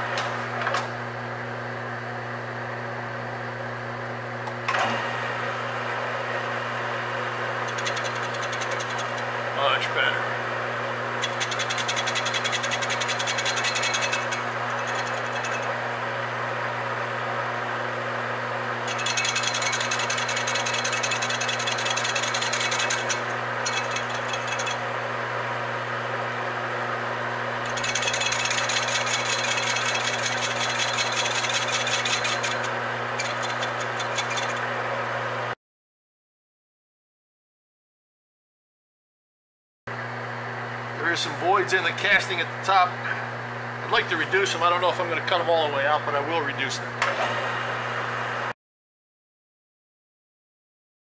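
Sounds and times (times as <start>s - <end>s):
lathe motor hum: 1.6s - 35.6s
lathe tool rattling cut: 7.6s - 9.4s, 11.1s - 15.9s, 18.8s - 25.0s, 27.6s - 34.7s.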